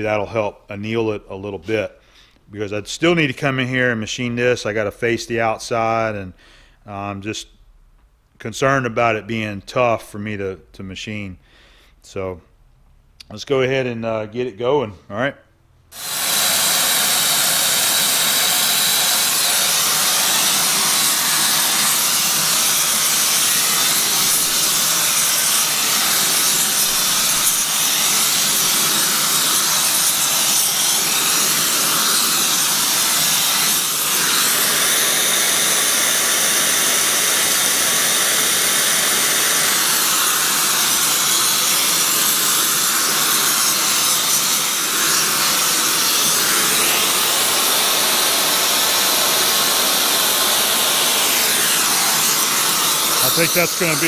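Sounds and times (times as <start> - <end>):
gas torch flame hissing: 15.9 - 54.0.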